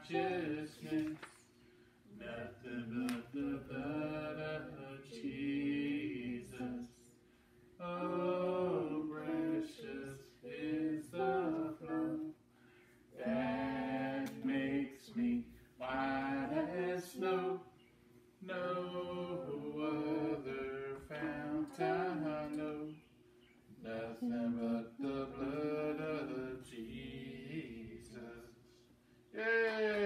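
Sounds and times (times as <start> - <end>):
boy singing a hymn: 2.2 - 7.0, 7.8 - 12.4.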